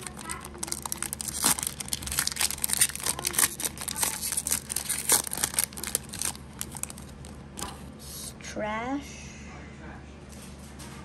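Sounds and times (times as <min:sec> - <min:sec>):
foil wrapper crinkling: 0:00.0 - 0:07.7.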